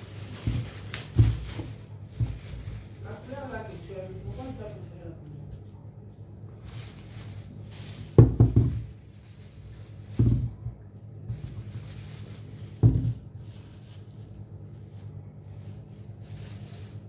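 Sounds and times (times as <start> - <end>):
potatoes knocking together: 0.0 - 3.1, 8.1 - 9.1, 10.0 - 13.6.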